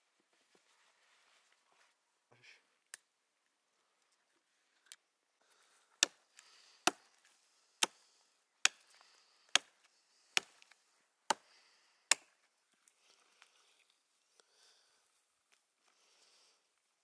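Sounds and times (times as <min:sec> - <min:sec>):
hatchet chopping wood: 0:06.0 - 0:06.2, 0:06.8 - 0:07.1, 0:07.8 - 0:08.0, 0:08.6 - 0:08.9, 0:09.5 - 0:09.8, 0:10.4 - 0:10.6, 0:11.3 - 0:11.5, 0:12.1 - 0:12.3.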